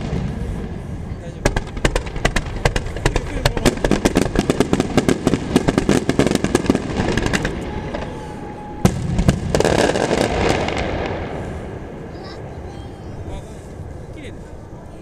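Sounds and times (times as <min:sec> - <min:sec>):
sharp firework bangs: 0:00.0 - 0:13.0
fireworks launches and bursts: 0:00.0 - 0:14.3
firework crackle: 0:00.0 - 0:15.0
firework whistle: 0:04.4 - 0:13.2.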